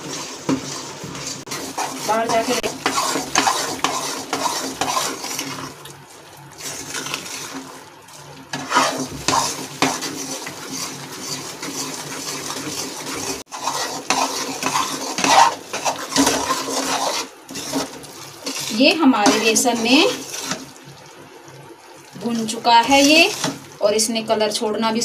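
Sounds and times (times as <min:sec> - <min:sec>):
metal spoon scraping a pot: 0:00.0 - 0:05.7, 0:08.5 - 0:20.6, 0:22.8 - 0:23.6.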